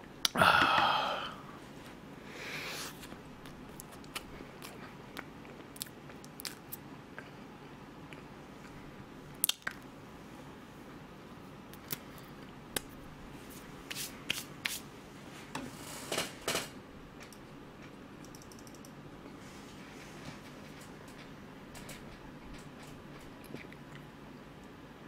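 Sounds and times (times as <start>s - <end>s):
chewing with wet mouth clicks: 3.4s - 7.4s, 23.1s - 24.7s.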